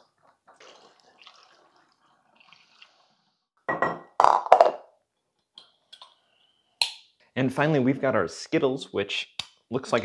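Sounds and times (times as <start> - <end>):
liquid trickling into bottle: 0.5 - 3.2
glass clinks and knocks: 3.7 - 4.4.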